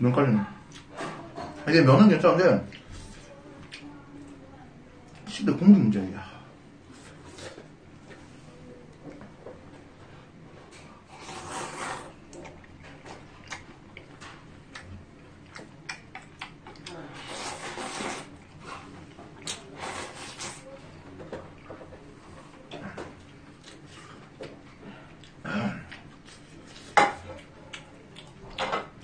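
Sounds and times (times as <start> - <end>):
man slurping noodles: 11.1 - 12.2, 17.2 - 18.3.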